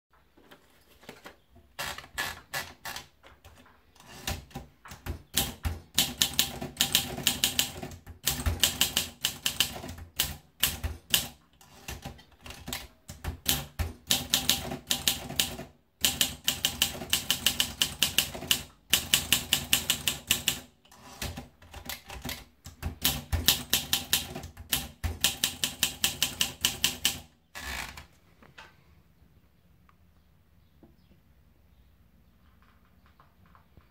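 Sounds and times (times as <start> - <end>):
typewriter keys striking: 1.8 - 27.2.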